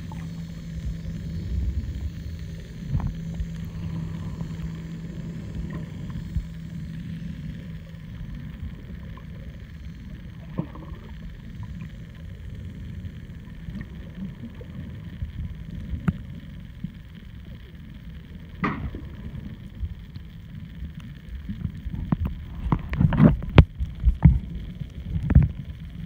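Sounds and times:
steady low hum: 0:00.0 - 0:26.0
underwater water rumble: 0:00.0 - 0:26.0.

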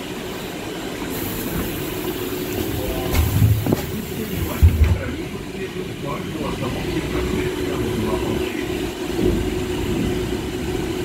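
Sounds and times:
trolleybus electric hum: 0:00.0 - 0:11.0
high hiss: 0:01.0 - 0:05.1
heavy low thumps: 0:02.8 - 0:05.4.

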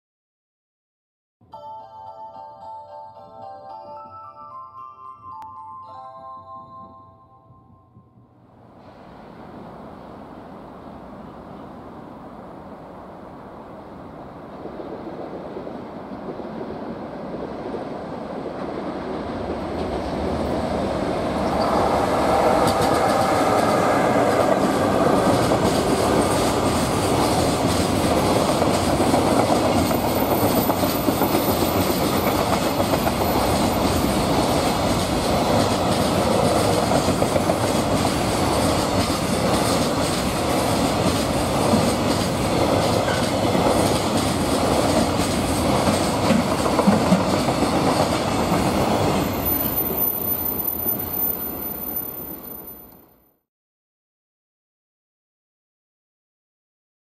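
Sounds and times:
freight train rumble: 0:06.8 - 0:52.8
wheels clacking over rail joints: 0:18.6 - 0:50.6.

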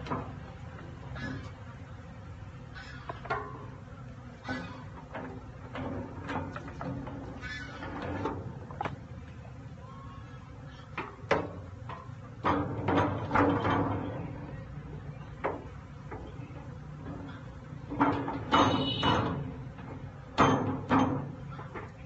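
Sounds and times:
wooden frames knocking on metal drum: 0:04.5 - 0:09.0, 0:10.8 - 0:14.6, 0:15.2 - 0:22.0
ringing metal clang: 0:17.2 - 0:19.6.

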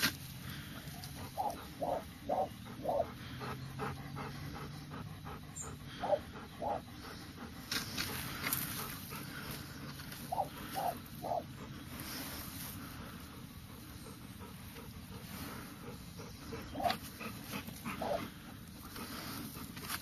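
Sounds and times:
dog panting: 0:00.5 - 0:20.0
dog barking: 0:01.4 - 0:03.1, 0:06.0 - 0:06.8, 0:18.0 - 0:18.2.

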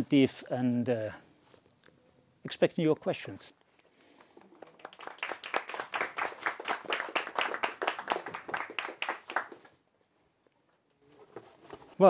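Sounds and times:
audience applauding: 0:04.4 - 0:09.8.

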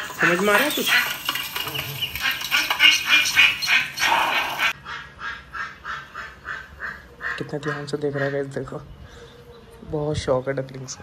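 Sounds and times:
ducklings calling through speakers: 0:00.0 - 0:08.8.

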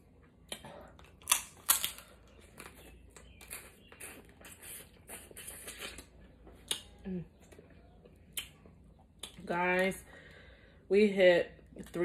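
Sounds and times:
crab shell cracking: 0:01.1 - 0:02.1
chewing and sucking clicks: 0:02.6 - 0:07.0.

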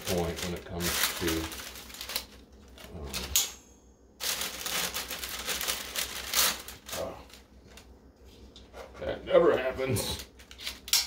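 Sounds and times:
parchment paper crinkling: 0:00.0 - 0:03.4, 0:04.2 - 0:08.5.

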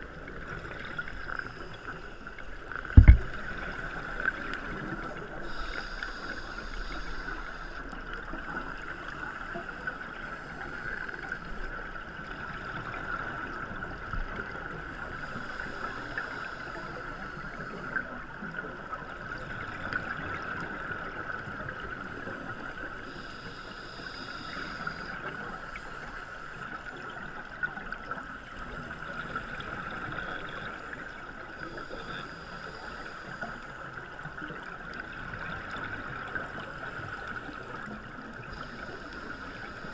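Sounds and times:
scuba regulator bubbling: 0:00.0 - 0:11.7
underwater hiss: 0:00.2 - 0:11.7, 0:15.0 - 0:18.2, 0:21.0 - 0:27.2, 0:31.6 - 0:34.0, 0:38.4 - 0:39.9.

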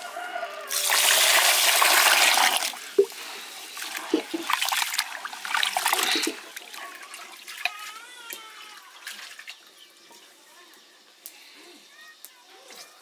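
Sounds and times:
water splashing and trickling: 0:00.7 - 0:09.9.

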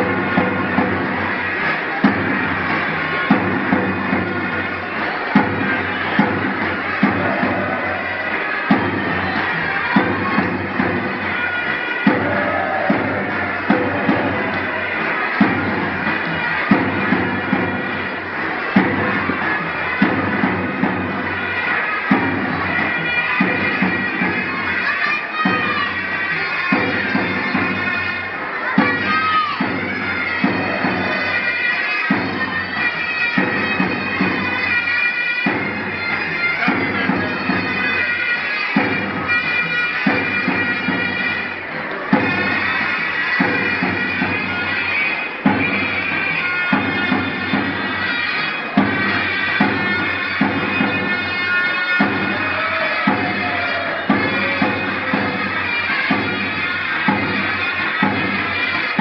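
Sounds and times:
deep drum beats: 0:12.0 - 0:17.9.

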